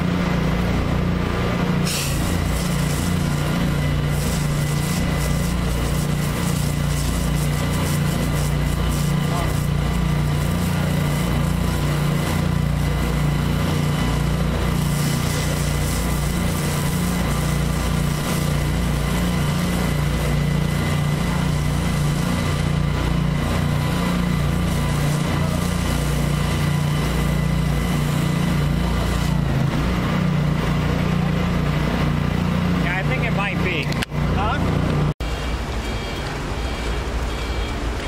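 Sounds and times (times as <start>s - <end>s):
water jet spraying concrete: 0.0s - 35.5s
pressure washer engine droning: 0.0s - 38.0s.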